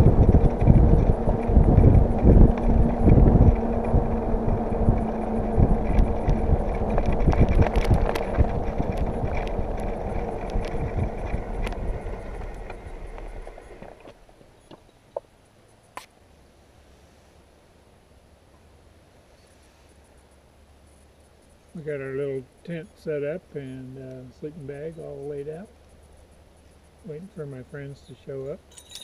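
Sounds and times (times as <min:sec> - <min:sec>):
wind on microphone: 0:00.0 - 0:14.1
trailer rattling knocks: 0:00.0 - 0:14.2
bicycle tyre noise on road: 0:00.0 - 0:15.3.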